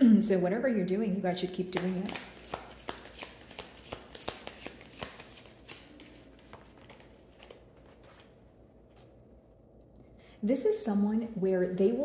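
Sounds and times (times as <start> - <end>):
cards being shuffled: 1.7 - 9.2.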